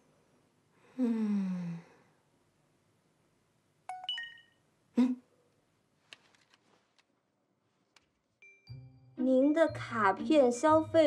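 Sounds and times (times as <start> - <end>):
woman moaning: 0.9 - 2.0
phone message alert chime: 3.9 - 4.6.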